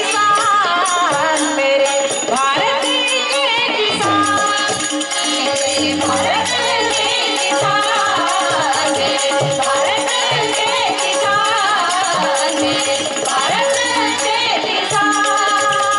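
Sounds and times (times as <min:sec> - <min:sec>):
woman singing devotional song: 0:00.0 - 0:15.9
steady drone note: 0:05.9 - 0:07.9.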